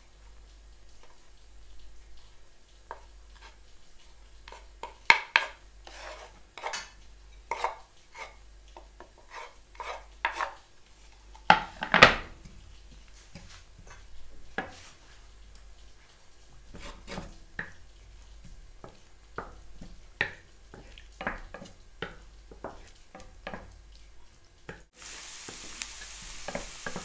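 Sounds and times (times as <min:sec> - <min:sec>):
wooden spatula scraping board: 0:03.3 - 0:03.6, 0:04.5 - 0:06.9, 0:07.5 - 0:08.4, 0:09.0 - 0:15.2, 0:16.6 - 0:17.8.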